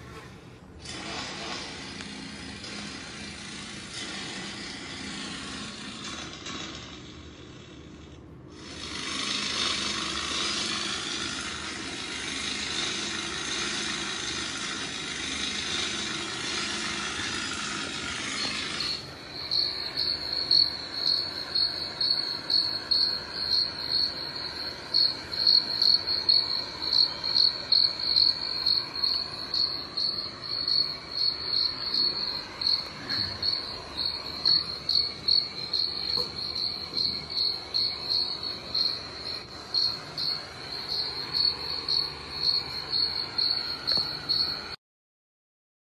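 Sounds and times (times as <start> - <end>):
cricket chirping from phone speaker: 18.4 - 44.8.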